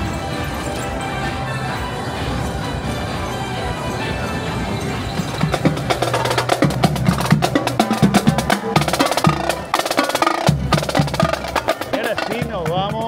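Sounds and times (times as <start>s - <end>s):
steady musical bed: 0.0s - 13.0s
fast percussive beat: 5.2s - 13.0s.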